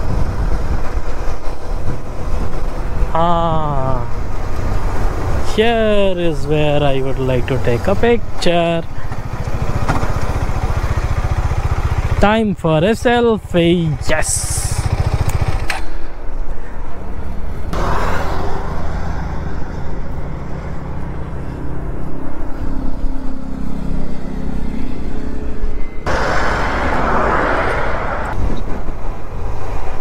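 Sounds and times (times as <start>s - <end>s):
motorcycle engine hum: 0.0s - 29.5s
rushes of noise: 25.8s - 30.0s.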